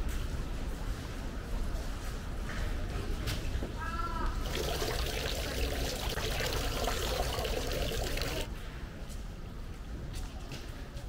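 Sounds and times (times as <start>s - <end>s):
water pouring from spouts: 4.4s - 8.5s
water splashing over hands: 4.4s - 8.5s.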